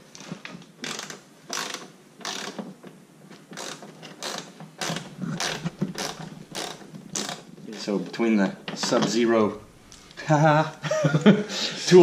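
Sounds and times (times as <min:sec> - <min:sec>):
ratchet screwdriver clicking: 0:03.6 - 0:07.4.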